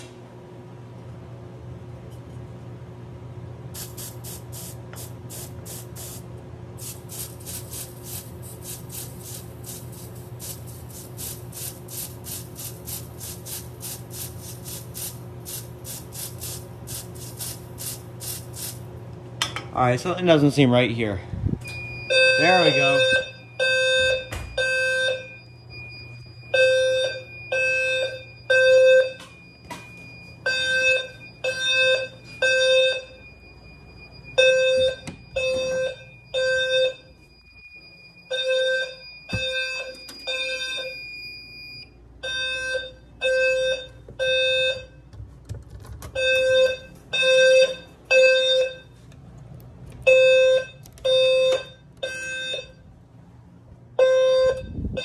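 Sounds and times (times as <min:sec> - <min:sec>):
fire alarm sounder blasts: 0:21.7 - 0:45.1, 0:46.2 - 0:49.0, 0:50.0 - 0:52.9, 0:54.0 - 0:55.0.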